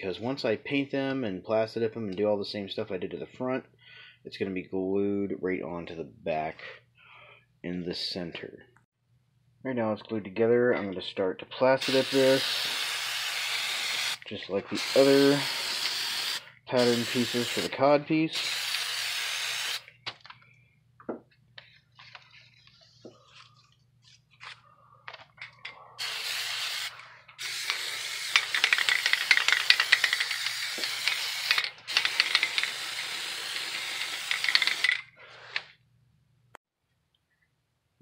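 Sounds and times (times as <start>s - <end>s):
aerosol can spraying: 11.8s - 19.9s, 26.0s - 35.0s.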